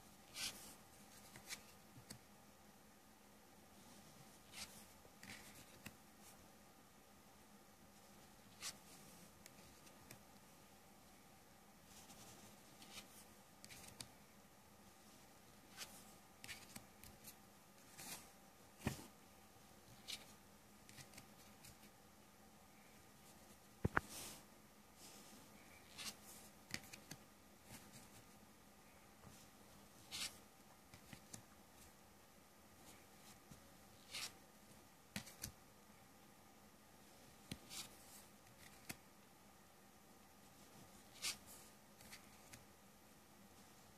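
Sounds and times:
playing cards sliding and flicking: 0.3 - 2.2, 25.9 - 28.2, 30.0 - 31.4, 34.0 - 34.4, 37.5 - 39.0, 41.1 - 42.7
playing cards swishing and tapping: 37.5 - 39.0.

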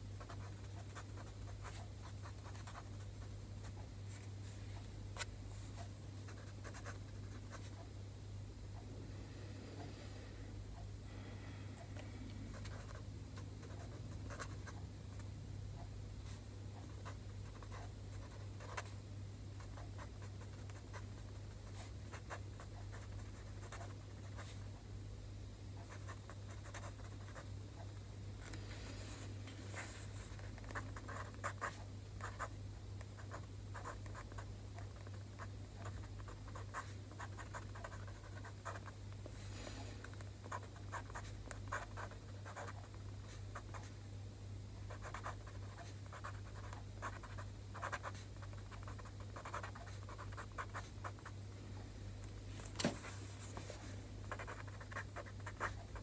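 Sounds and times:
steady low hum: 0.0 - 56.0
pen scratching on paper: 0.2 - 3.0, 29.8 - 32.5, 33.2 - 38.9, 40.5 - 42.8, 44.9 - 51.3, 54.3 - 56.0.

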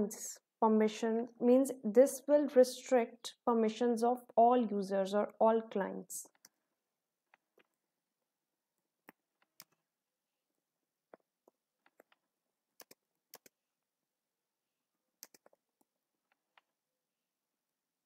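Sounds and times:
computer keyboard typing: 9.0 - 9.8, 11.5 - 13.6, 15.2 - 16.7.

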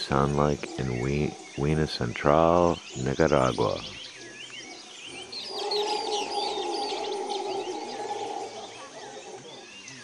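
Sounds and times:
monkeys roaring in distance: 0.0 - 2.4, 3.2 - 10.0
birds chirping: 0.0 - 10.0.

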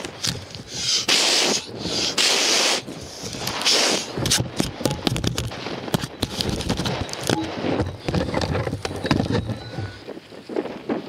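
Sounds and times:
wind rumble: 0.0 - 11.0
person blowing puffs of breath: 0.5 - 4.2
sharp crackling clicks: 3.3 - 10.0.

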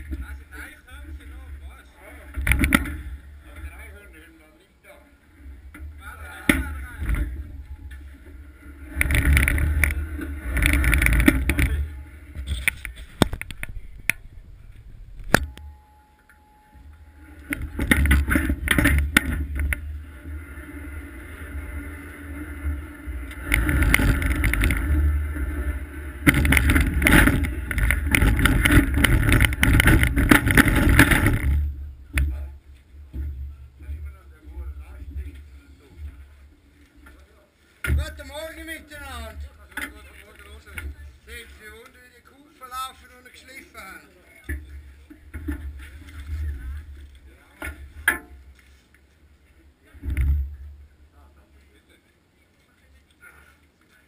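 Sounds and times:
sled runners scraping ice: 5.5 - 13.2, 17.2 - 31.8.

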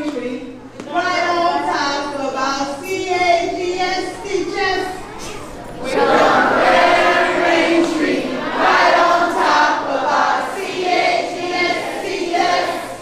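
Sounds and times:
children chanting in unison: 3.8 - 13.0.

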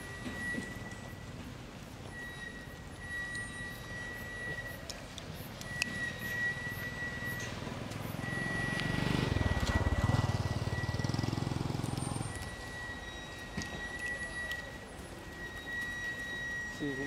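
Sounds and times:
vehicle engine passing by: 6.9 - 12.5.

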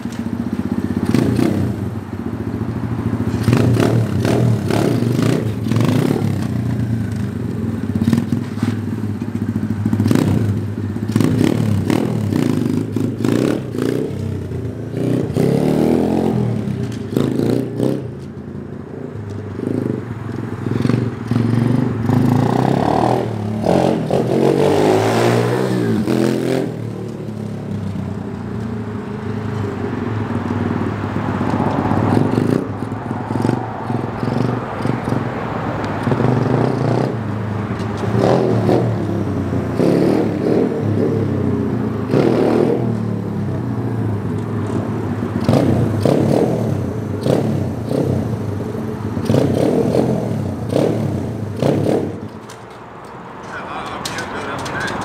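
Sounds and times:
motorcycle engine revving: 0.0 - 52.7, 53.4 - 55.0.

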